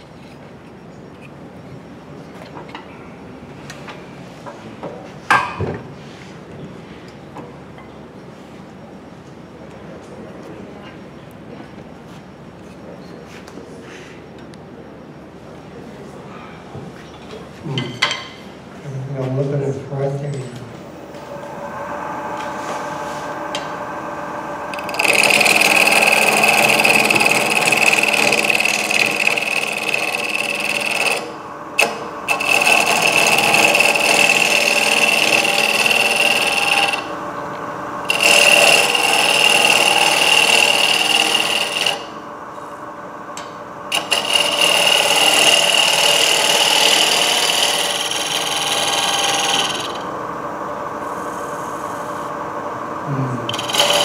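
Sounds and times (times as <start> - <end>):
wood lathe running: 21.0 - 54.0
lathe tool cutting wood: 21.1 - 42.6, 43.3 - 54.0.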